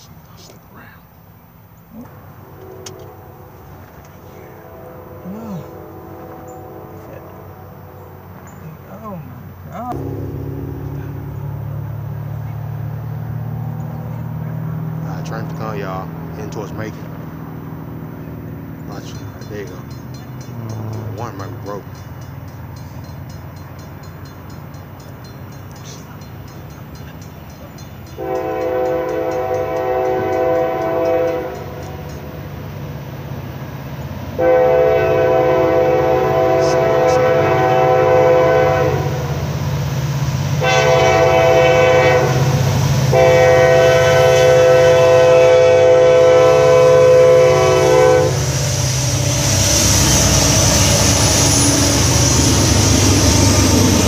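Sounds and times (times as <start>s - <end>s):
locomotive engine rumble: 0.0s - 54.0s
train wheel noise passing: 1.4s - 54.0s
train horn blasts: 2.4s - 9.0s, 9.9s - 14.1s, 28.1s - 32.0s, 34.4s - 39.5s, 40.4s - 54.0s.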